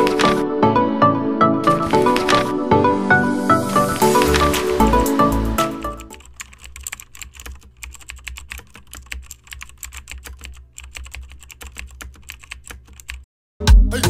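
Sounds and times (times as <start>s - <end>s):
loud music: 0.0s - 6.2s, 13.6s - 14.0s
keyboard typing clicks: 1.6s - 2.5s, 3.8s - 13.3s.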